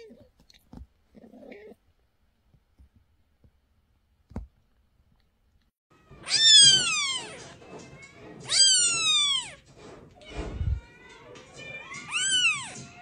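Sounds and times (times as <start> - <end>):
kitten meowing: 6.2 - 7.4.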